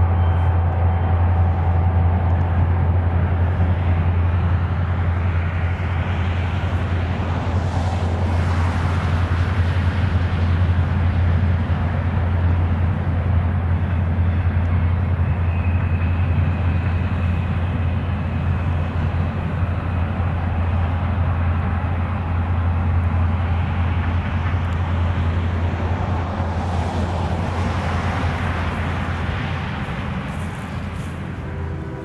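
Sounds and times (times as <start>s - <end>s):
freight train wheels rumbling: 0.0s - 32.0s.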